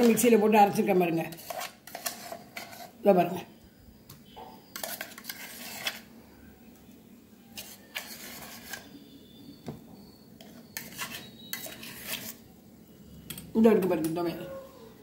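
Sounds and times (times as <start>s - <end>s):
steel spoon scraping steel vessels: 0.0s - 3.3s, 4.7s - 6.1s, 7.5s - 9.0s, 10.4s - 12.5s.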